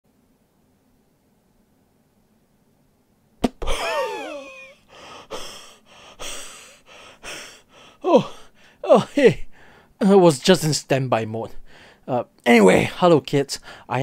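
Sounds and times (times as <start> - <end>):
man breathing loudly: 4.8 - 8.8, 9.5 - 10.0, 11.6 - 12.0, 13.6 - 13.9.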